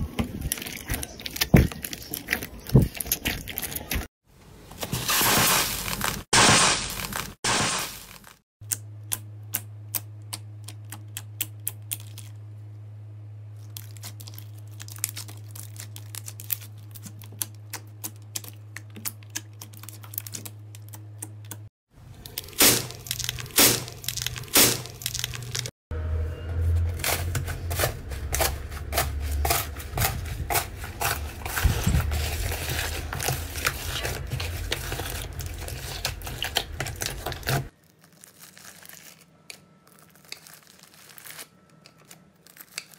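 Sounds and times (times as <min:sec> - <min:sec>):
slime crackling and popping: 0:13.6 - 0:21.0, 0:22.3 - 0:25.7, 0:33.2 - 0:42.9
low hum: 0:22.0 - 0:37.1.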